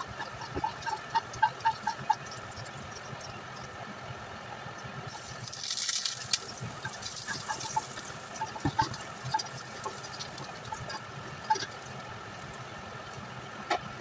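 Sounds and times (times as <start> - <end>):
food sizzling in hot oil: 5.1 - 12.4.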